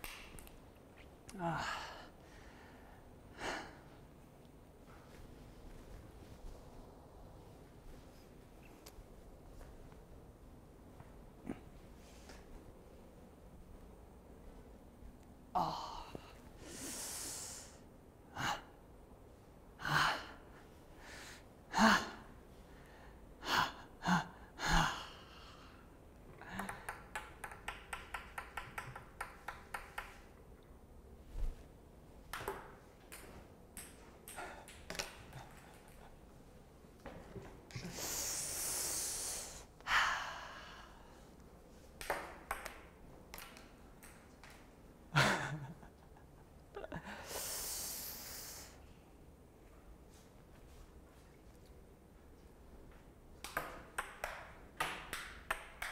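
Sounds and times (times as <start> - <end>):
ping-pong ball clicking: 26.7 - 30.2, 42.0 - 44.5, 53.4 - 55.9.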